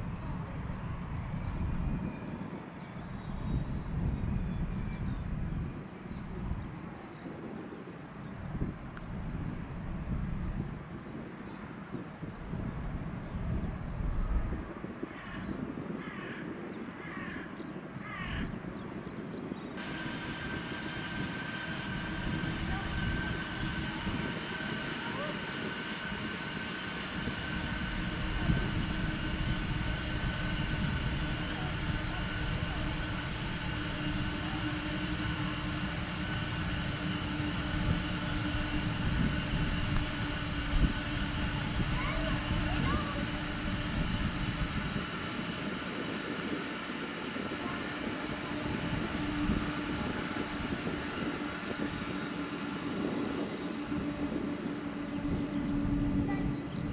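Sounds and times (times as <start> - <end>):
high jet engine whine: 0.0 - 56.9
crow cawing: 16.0 - 16.4, 17.0 - 18.5
low outdoor rumble: 19.7 - 56.9.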